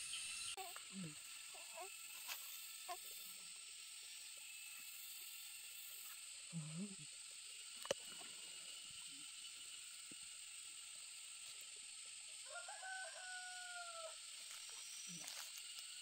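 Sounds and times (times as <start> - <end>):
steady high hiss: 0.0 - 16.0
rooster crowing: 12.4 - 14.2.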